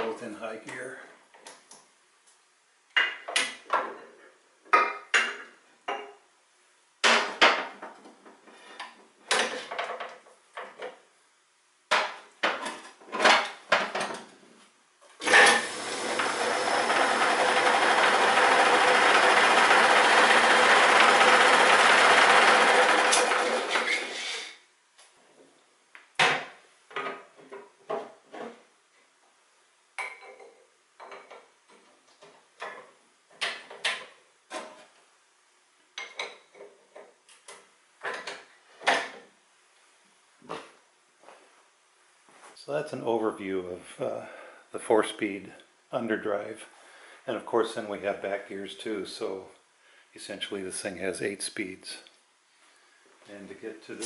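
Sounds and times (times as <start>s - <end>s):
lathe motor and belts running: 15.2s - 24.2s.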